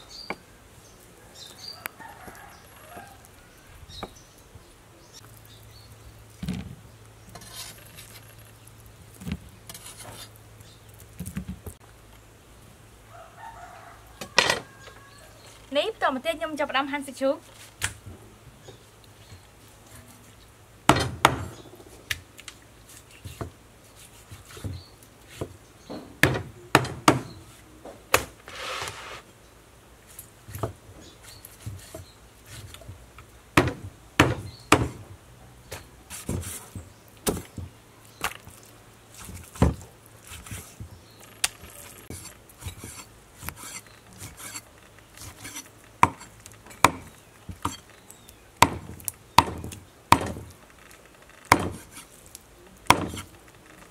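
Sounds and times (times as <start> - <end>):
knife striking wooden chopping board: 51.5 - 52.0, 52.9 - 53.3.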